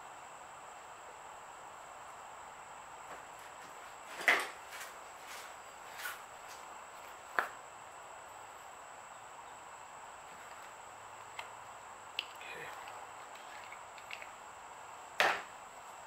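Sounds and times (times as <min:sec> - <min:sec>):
faint steady hiss: 0:00.0 - 0:16.0.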